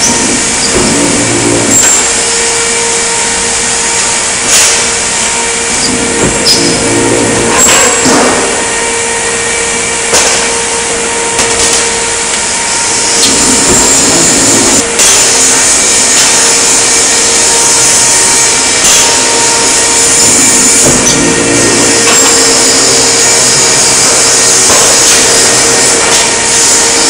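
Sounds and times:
metal-shop machinery whining: 0.0 - 27.0
sharp metal knocks: 20.7 - 23.2.

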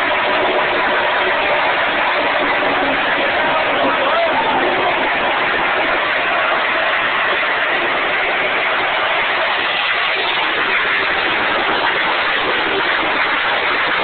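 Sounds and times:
race car engines roaring: 0.0 - 14.0.

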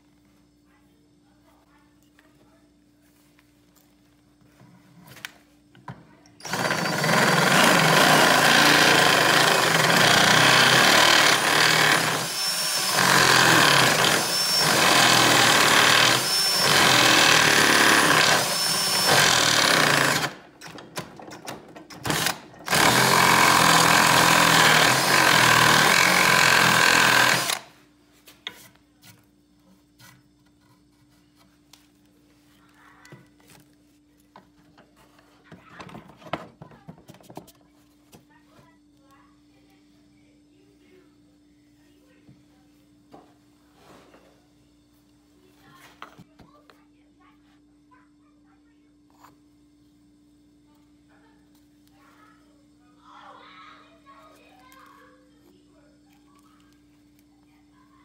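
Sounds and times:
cordless drill reaming wood: 6.4 - 20.4, 22.1 - 27.7.

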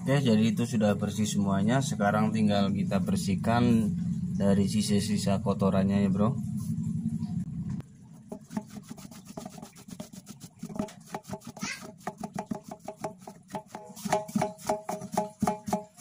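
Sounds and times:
rubbing strokes on rubber: 8.3 - 16.0.

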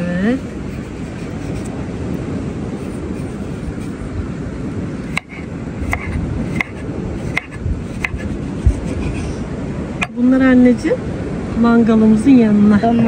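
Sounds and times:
wind rumble on microphone: 0.0 - 13.0
knife chopping on cutting board: 5.1 - 9.0.

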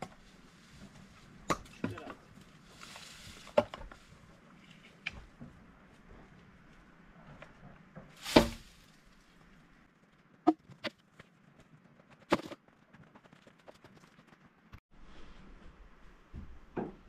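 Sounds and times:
footsteps on dry leaves: 2.6 - 3.6.

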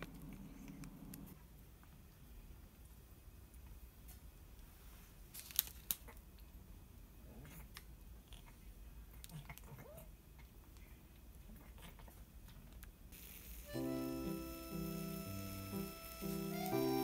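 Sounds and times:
plastic film crinkling: 5.2 - 6.2.

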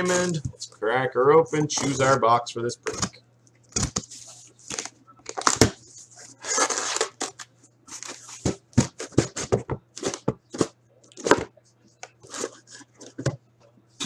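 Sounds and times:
cardboard tearing: 3.7 - 5.8, 6.4 - 10.2.

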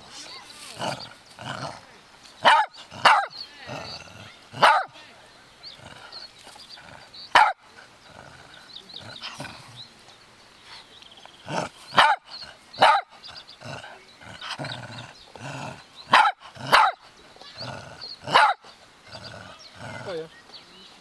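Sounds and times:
dog barking: 2.4 - 3.4, 4.6 - 5.0, 7.3 - 7.6, 11.9 - 13.1, 16.1 - 17.0, 18.3 - 18.6.

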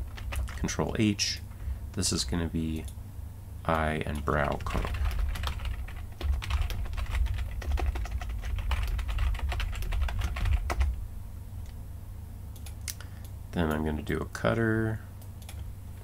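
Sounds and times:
typing on computer keyboard: 0.1 - 0.7, 4.2 - 11.0.

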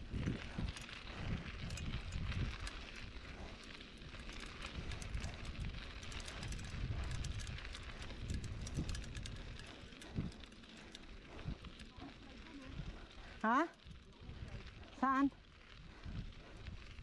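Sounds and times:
wind on microphone: 0.0 - 10.5, 15.7 - 17.0
bike clicks and rattles: 0.0 - 17.0
bike tyres rolling on path: 0.0 - 17.0.

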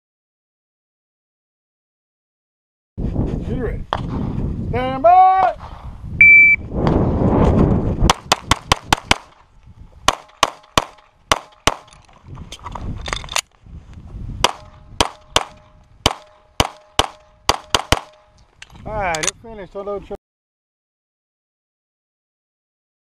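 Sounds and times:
rushing noise of movement: 5.6 - 9.2
pistol shots: 8.1 - 9.4, 10.1 - 11.9, 14.4 - 18.3.

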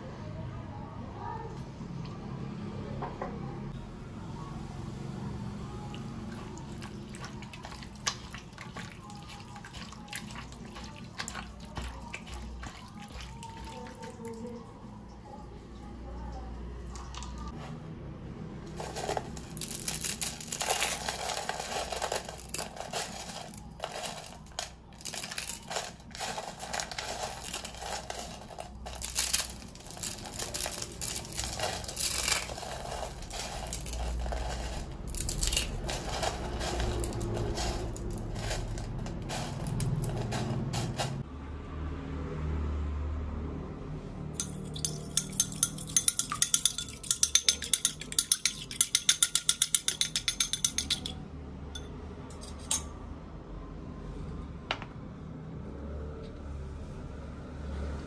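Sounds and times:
dry noodles being crushed: 18.7 - 40.8
fork beating eggs in a bowl: 44.4 - 51.2.

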